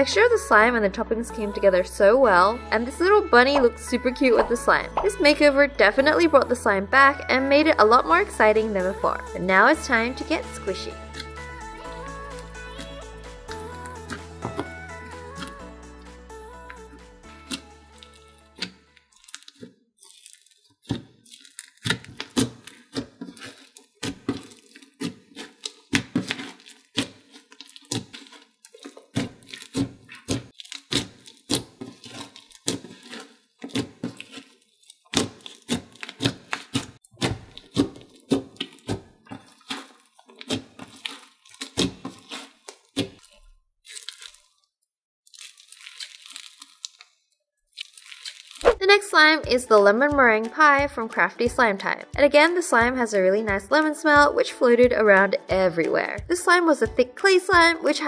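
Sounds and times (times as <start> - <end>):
hands squishing crunchy slime: 17.5 - 44.7, 45.3 - 48.8.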